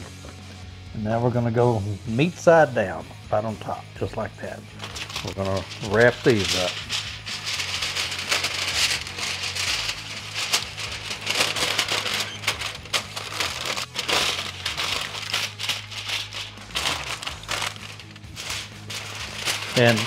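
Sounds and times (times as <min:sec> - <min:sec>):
aluminum foil crinkling: 0:04.8 - 0:20.0.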